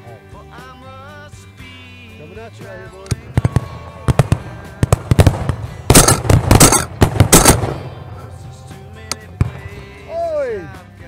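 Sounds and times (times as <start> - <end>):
shotgun shots: 3.1 - 8.2.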